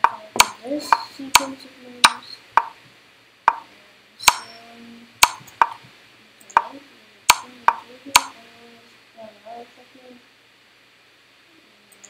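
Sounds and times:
wooden chess piece knocks: 0:00.0 - 0:02.8, 0:05.2 - 0:05.9.

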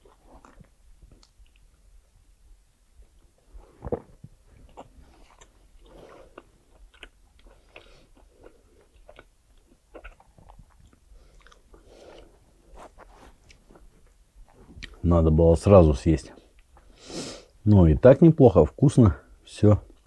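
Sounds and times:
man chewing: 0:00.0 - 0:02.2, 0:02.9 - 0:15.0.

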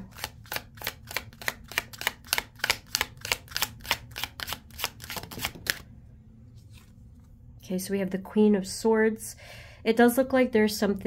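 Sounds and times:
cards being shuffled: 0:00.0 - 0:05.9.

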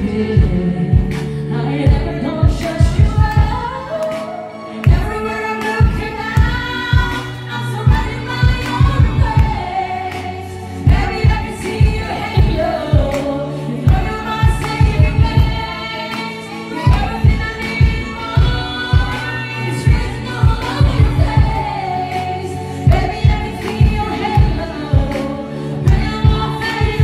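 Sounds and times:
backing track drums and bass: 0:00.0 - 0:01.3, 0:01.9 - 0:03.7, 0:05.8 - 0:09.8, 0:10.9 - 0:13.2, 0:13.9 - 0:15.8, 0:16.9 - 0:21.8, 0:22.9 - 0:25.2
woman singing into microphone: 0:00.0 - 0:27.0.

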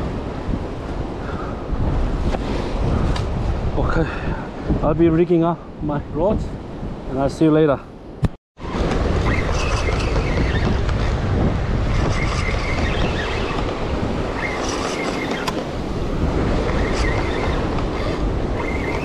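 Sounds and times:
wind buffeting microphone: 0:00.0 - 0:19.0
ocean surf on rocks: 0:08.6 - 0:19.0.

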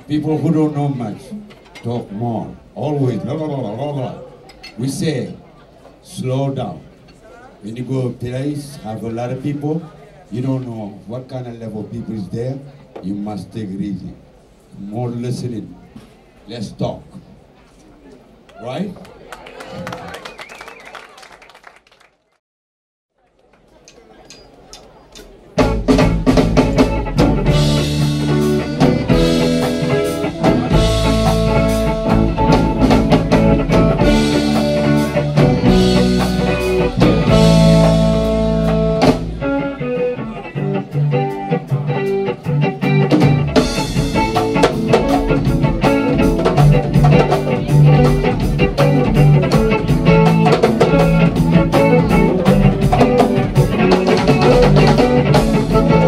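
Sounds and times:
live band with guitars and drums: 0:00.0 - 0:06.2, 0:11.6 - 0:21.6, 0:23.9 - 0:56.0.

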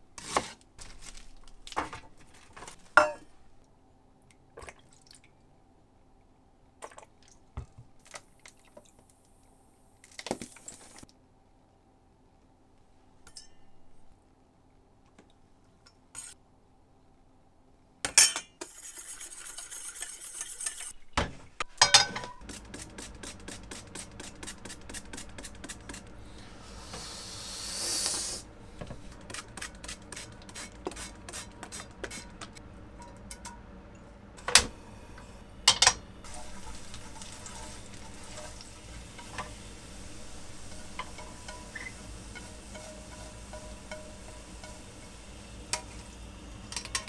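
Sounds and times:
spray hiss: 0:26.2 - 0:28.5
garlic sizzling in oil: 0:36.2 - 0:47.0.

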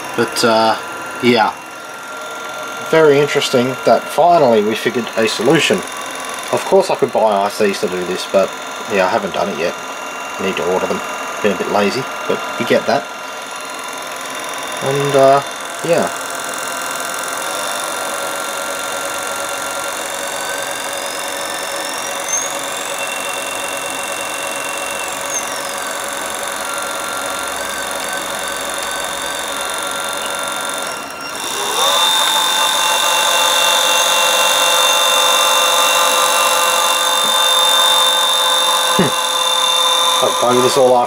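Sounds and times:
electric motor whining: 0:00.0 - 0:41.0.

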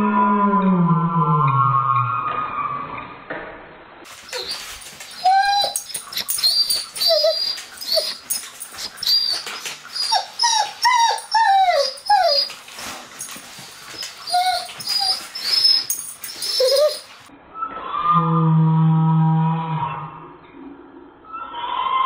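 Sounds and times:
dog whining: 0:04.1 - 0:17.3.

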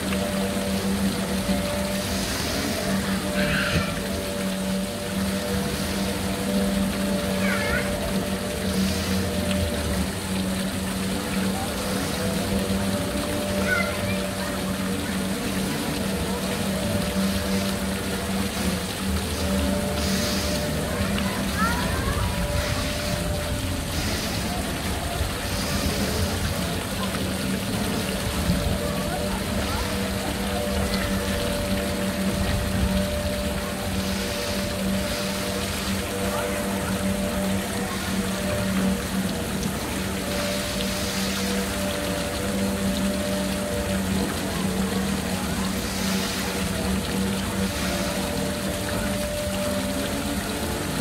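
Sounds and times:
even hiss: 0:00.0 - 0:51.0
faint voices: 0:00.0 - 0:51.0
ride drone and rushing: 0:00.0 - 0:51.0.

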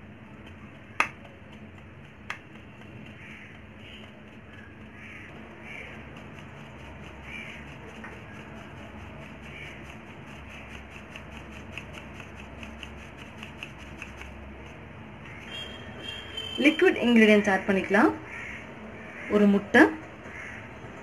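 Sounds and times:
hand tapping plastic sieve: 0:00.0 - 0:14.9.

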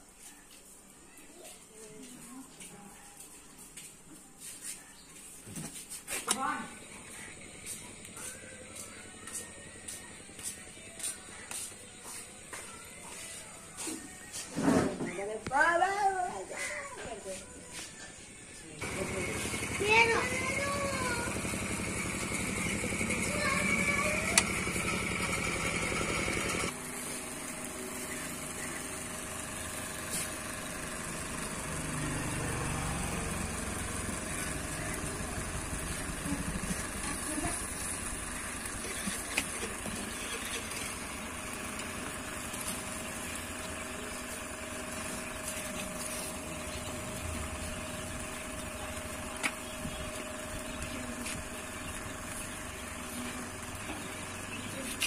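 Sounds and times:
electric fan humming: 0:18.3 - 0:55.0.

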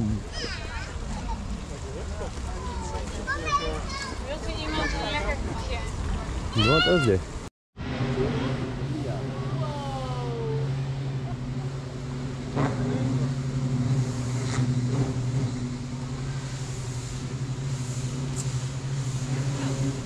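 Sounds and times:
low mechanical hum: 0:07.3 - 0:20.0.

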